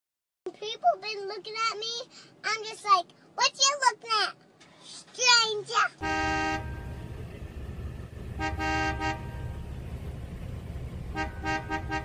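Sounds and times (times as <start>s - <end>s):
car horn honking: 6.0s - 7.4s, 8.2s - 10.1s, 10.8s - 12.0s
car engine idling: 6.0s - 12.0s.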